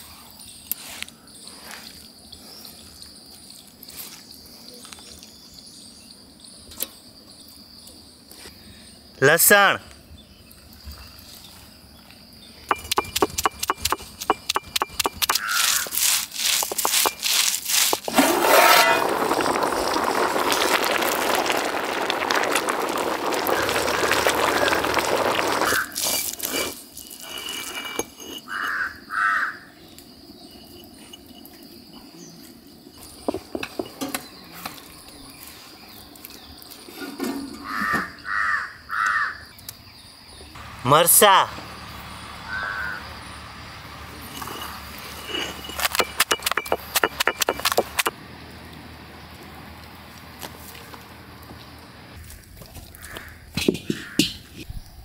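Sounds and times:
crows cawing: 15.3s - 15.9s, 28.5s - 29.7s, 37.6s - 39.4s, 42.5s - 43.0s, 52.2s - 54.3s.

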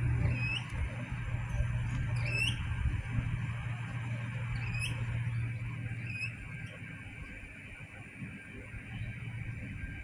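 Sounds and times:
electric train humming: 0.0s - 10.0s
bird squawks: 0.2s - 0.7s, 2.2s - 2.6s, 4.6s - 5.1s, 5.9s - 6.6s.

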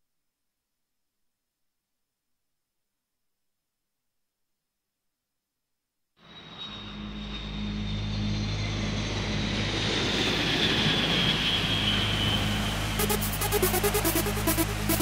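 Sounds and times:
high jet whine: 6.2s - 15.0s
jet airplane passing overhead: 6.2s - 15.0s.

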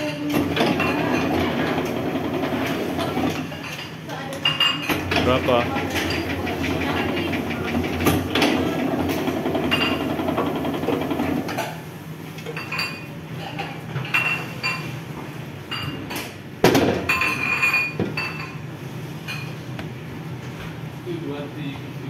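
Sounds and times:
electric dough sheeter running: 0.2s - 3.7s, 4.9s - 11.8s.

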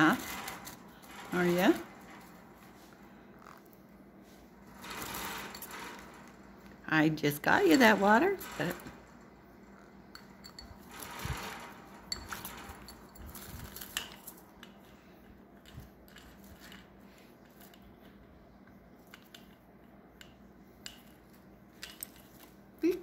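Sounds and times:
faint clicks and rustles: 0.0s - 23.0s.

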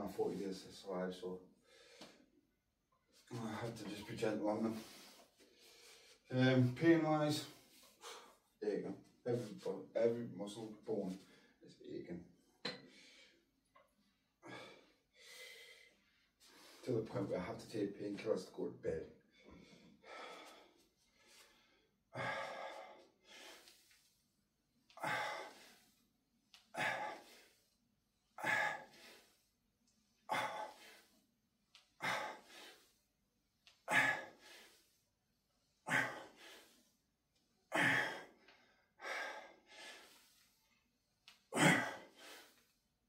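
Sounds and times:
man breathing hard: 14.4s - 16.8s, 19.3s - 24.1s, 24.9s - 26.1s, 26.7s - 27.8s, 28.4s - 31.2s, 32.0s - 33.1s, 33.8s - 37.0s, 37.7s - 40.8s, 41.6s - 42.6s.

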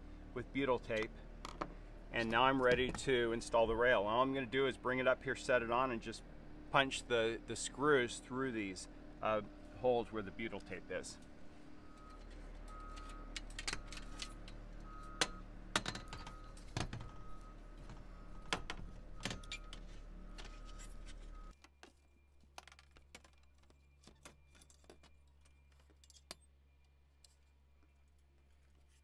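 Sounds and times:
steady background hum: 0.0s - 21.6s.

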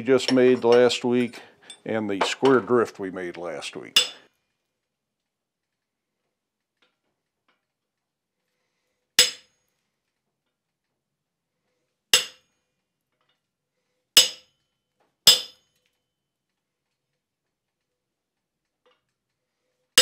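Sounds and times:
hammer striking chisel on metal: 9.2s - 9.5s, 12.1s - 12.5s, 14.2s - 14.5s, 15.3s - 15.6s.

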